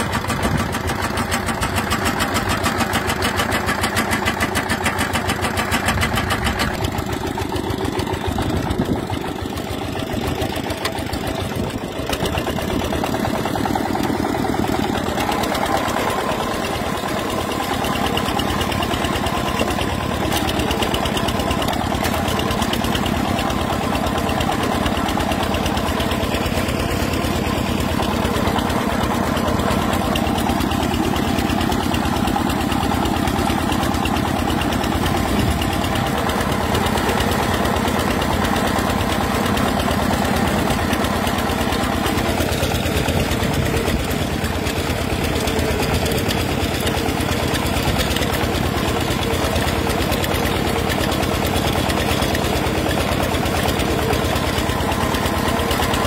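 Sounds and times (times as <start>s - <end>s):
small engine running: 0.0s - 56.0s.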